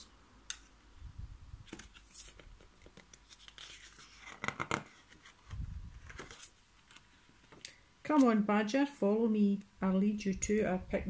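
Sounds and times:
paper pages rustling: 0:01.6 - 0:07.6.

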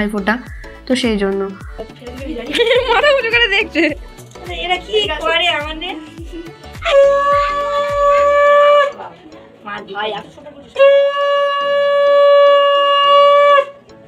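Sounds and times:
conch shell blasts: 0:06.8 - 0:09.0, 0:10.8 - 0:13.8.

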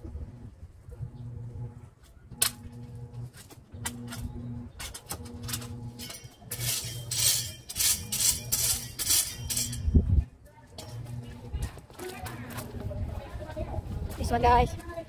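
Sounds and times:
gravel clinking under tools: 0:02.6 - 0:13.0
tool scraping through gravel: 0:04.9 - 0:10.0.

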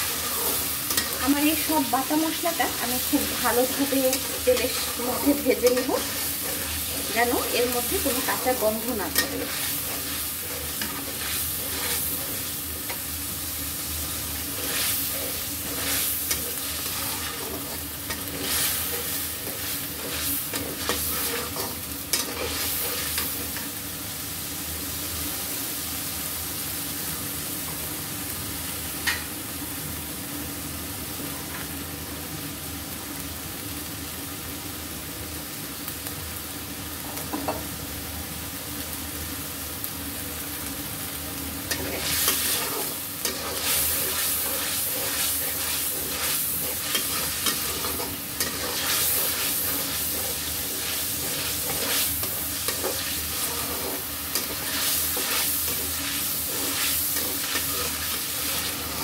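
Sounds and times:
paste sizzling in hot oil: 0:00.0 - 0:26.6, 0:40.9 - 0:59.0
metal spatula scraping a pan: 0:03.2 - 0:13.0, 0:14.4 - 0:23.6, 0:41.7 - 0:59.0.

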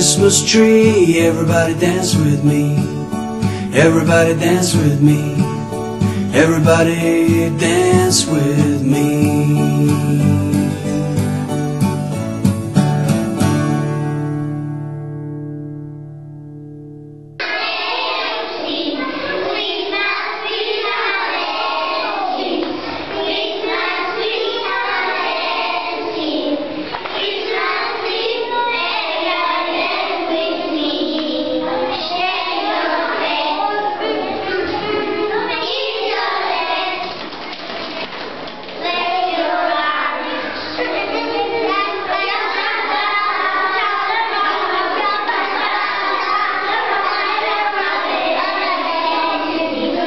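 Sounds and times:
children singing together: 0:00.0 - 0:11.2, 0:17.4 - 0:50.0
instrumental backing: 0:00.0 - 0:17.6.

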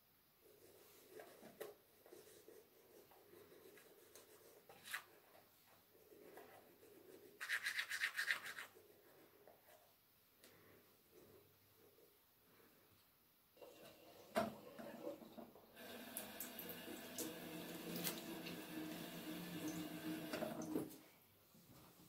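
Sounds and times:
toothbrush scrubbing teeth: 0:06.0 - 0:08.8.

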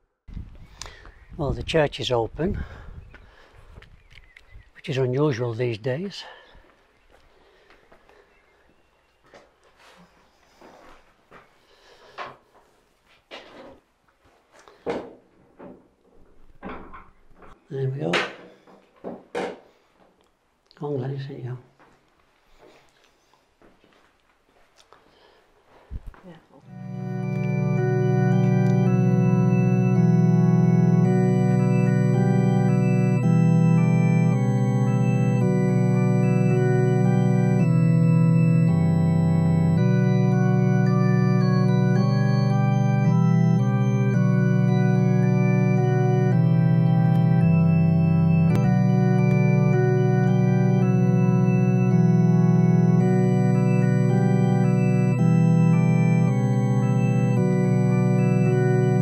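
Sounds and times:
organ playing slow chords: 0:00.0 - 0:01.4, 0:26.6 - 0:59.0
deep bass organ note: 0:26.6 - 0:59.0.

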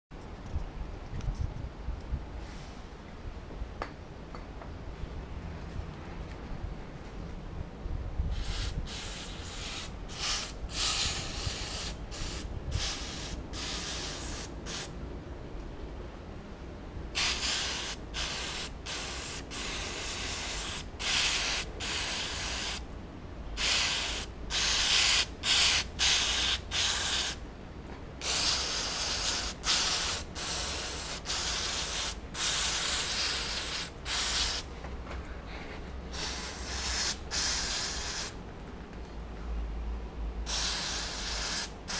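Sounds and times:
aerosol can spraying: 0:08.4 - 0:14.9, 0:17.2 - 0:22.8, 0:23.6 - 0:27.4, 0:28.2 - 0:34.7, 0:36.1 - 0:38.4, 0:40.5 - 0:41.9.

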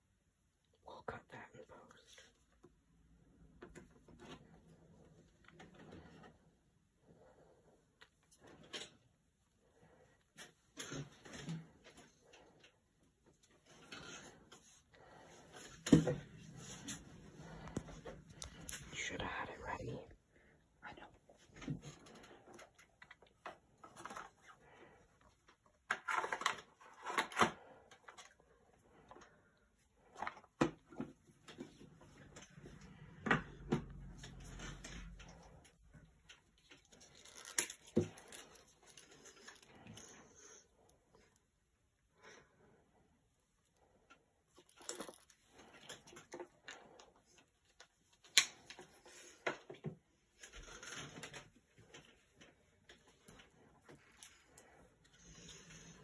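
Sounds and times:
knife sheath rustling and scraping: 0:36.6 - 0:40.4.

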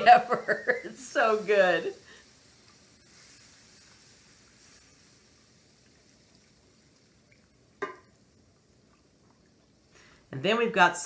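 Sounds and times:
whisking in a skillet: 0:00.0 - 0:07.4
milk pouring into a skillet: 0:00.1 - 0:10.2.

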